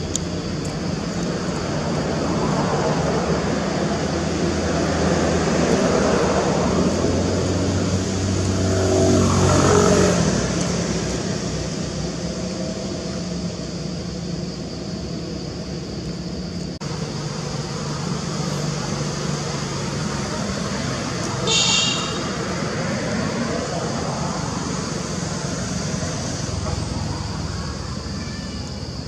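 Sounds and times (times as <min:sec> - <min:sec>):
vehicle engine passing by: 0:01.3 - 0:13.6, 0:16.8 - 0:28.1
steady background hum: 0:10.2 - 0:29.0.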